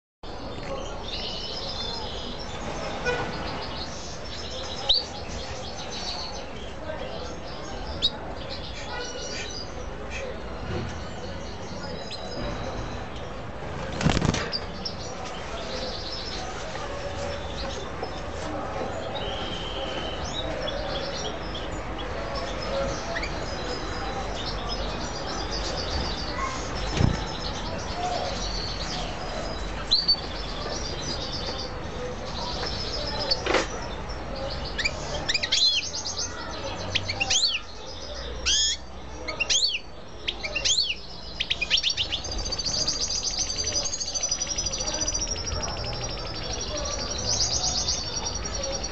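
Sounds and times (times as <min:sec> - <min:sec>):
birds trilling chirps: 0:00.3 - 0:48.9
birds' wings flapping: 0:13.8 - 0:14.6.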